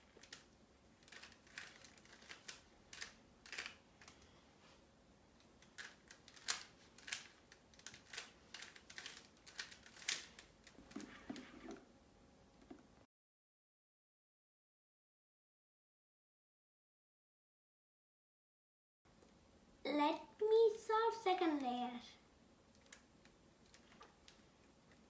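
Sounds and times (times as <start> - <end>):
puzzle cube clicking: 5.6 - 10.8.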